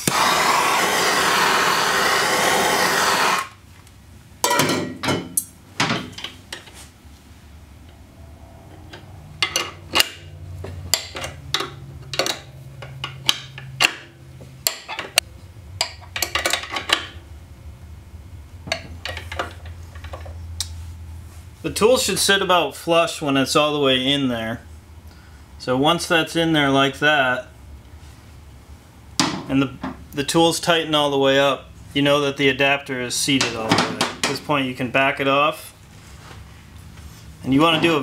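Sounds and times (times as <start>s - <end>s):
gas torch flame hissing: 0.0s - 3.6s.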